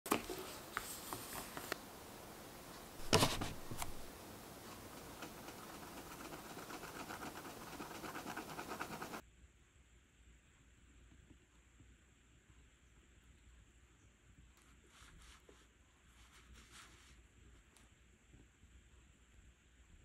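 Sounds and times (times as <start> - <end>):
tweezers scraping eyeshadow powder: 4.7 - 9.2.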